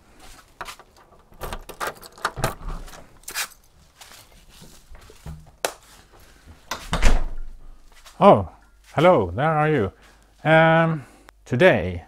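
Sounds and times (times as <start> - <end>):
footsteps: 0.0 - 1.3, 2.7 - 10.6
small scuffing knocks: 0.2 - 1.0, 3.4 - 7.0.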